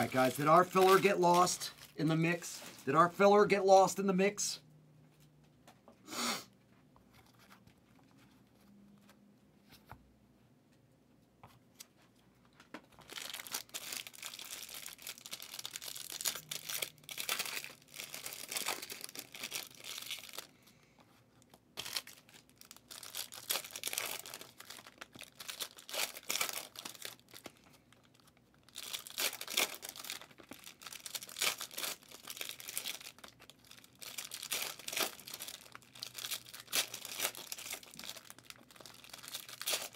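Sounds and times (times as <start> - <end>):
pack wrappers tearing and crinkling: 0.0 - 2.9, 13.0 - 20.5, 21.4 - 39.9.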